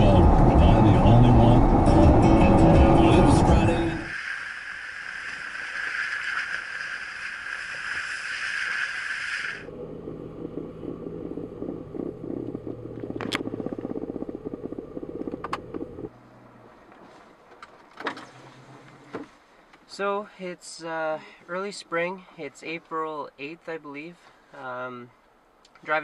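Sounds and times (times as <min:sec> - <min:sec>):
pulsing engine rumble: 0:00.0 - 0:19.8
tyre and wind noise hiss: 0:04.1 - 0:09.7.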